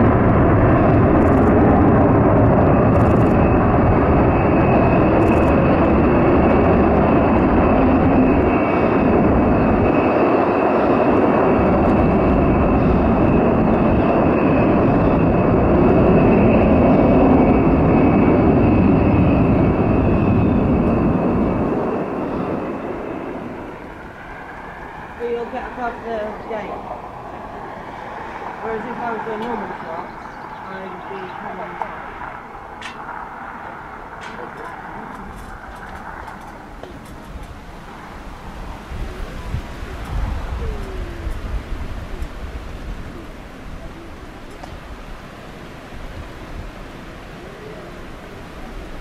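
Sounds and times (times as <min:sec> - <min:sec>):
jet engines roaring with whine: 0:00.0 - 0:49.0.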